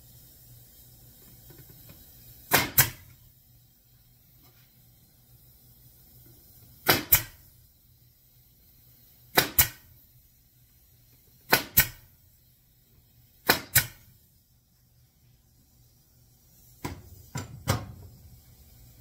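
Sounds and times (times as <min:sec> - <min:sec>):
pneumatic stapler shots: 0:01.6 - 0:03.2, 0:06.7 - 0:07.5, 0:09.2 - 0:10.0, 0:11.4 - 0:12.1, 0:13.4 - 0:14.2, 0:16.8 - 0:18.1.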